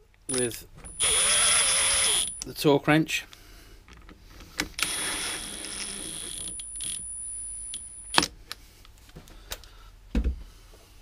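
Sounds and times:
cordless driver motor whine: 0.3s - 2.4s, 4.8s - 7.0s.

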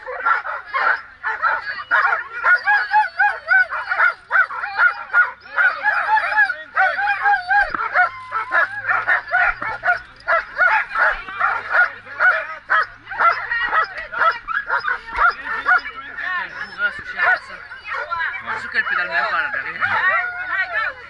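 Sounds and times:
dogs yelping and barking: 0.0s - 21.0s.

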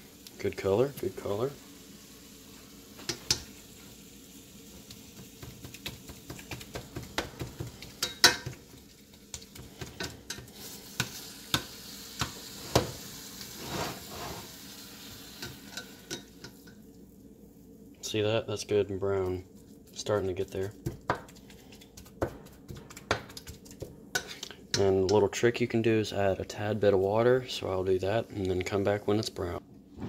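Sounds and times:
meat sizzling: 0.0s - 17.6s, 18.6s - 24.8s
metal spatula scraping a skillet: 12.5s - 14.6s.

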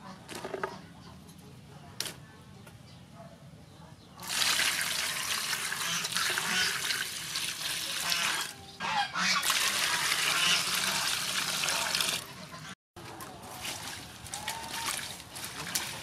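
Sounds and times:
water splashing into metal basin: 4.2s - 8.5s, 9.3s - 12.3s, 13.5s - 16.0s.

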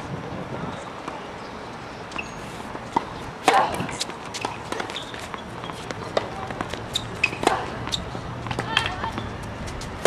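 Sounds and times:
footsteps with shoe squeaks: 2.1s - 3.2s, 3.9s - 10.0s
tennis ball bouncing: 2.1s - 10.0s
tennis racket striking ball: 3.0s - 9.2s.

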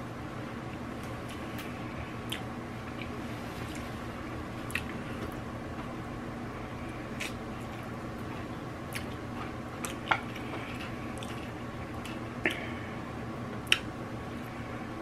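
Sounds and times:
steady hum: 0.0s - 15.0s
person chewing food: 0.7s - 5.4s, 6.8s - 12.9s, 13.6s - 14.6s
sharp mouth smacks: 13.6s - 13.9s.

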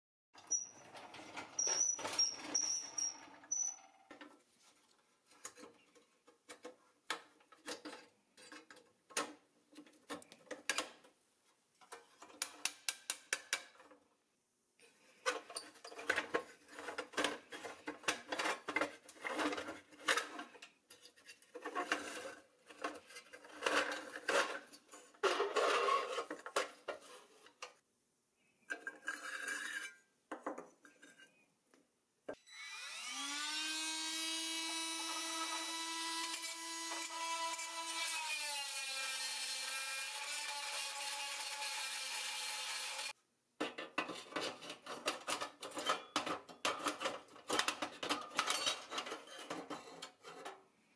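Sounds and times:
rotary tool whining: 32.4s - 43.2s.

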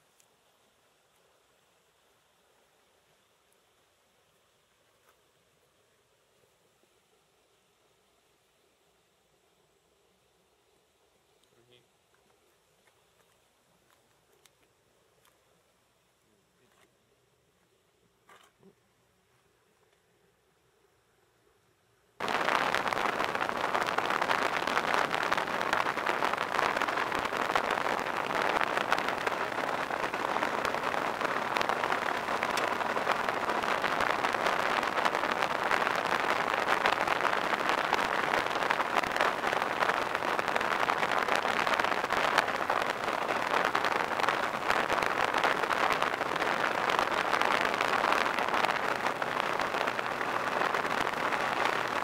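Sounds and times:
rushing wind and road noise: 22.2s - 52.0s.

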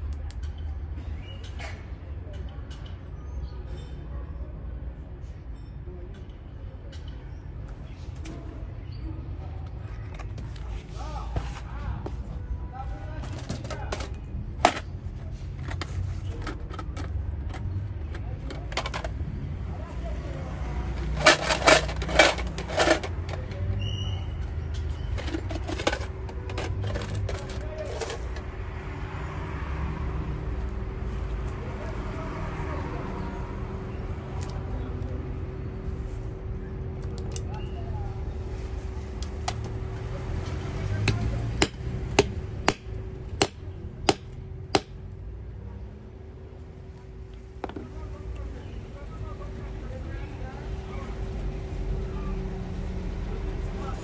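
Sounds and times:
low street rumble: 0.0s - 54.0s
metal tools clinking in tin: 21.0s - 23.8s, 25.0s - 28.4s.

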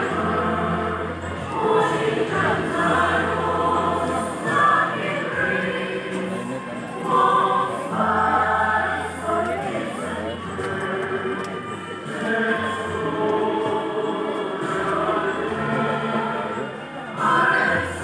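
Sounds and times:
choir singing long notes: 0.0s - 18.0s.

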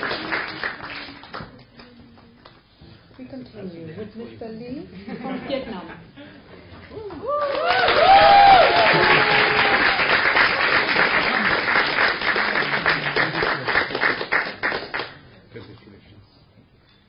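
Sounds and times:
audience applauding: 0.0s - 1.4s, 7.2s - 15.2s
voices cheering: 7.2s - 10.3s.

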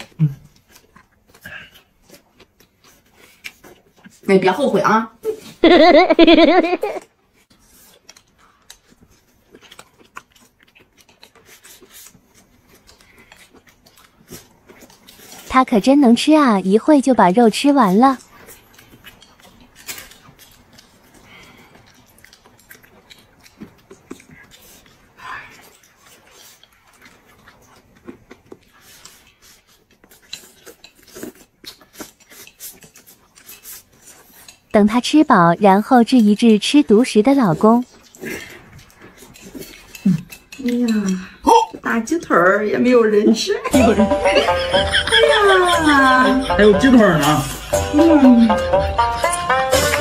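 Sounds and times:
chewing and lip smacks: 0.0s - 4.3s, 7.0s - 15.5s, 18.2s - 34.7s, 37.8s - 40.9s.

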